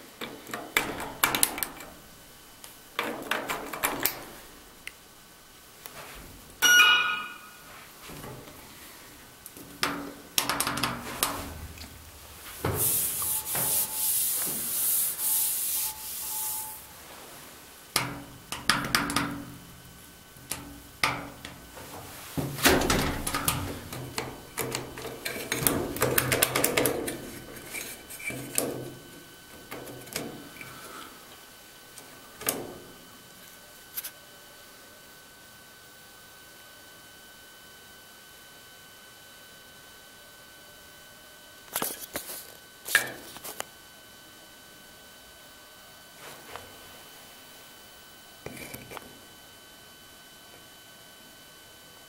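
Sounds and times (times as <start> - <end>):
loud hissing scrape: 12.7 - 16.9.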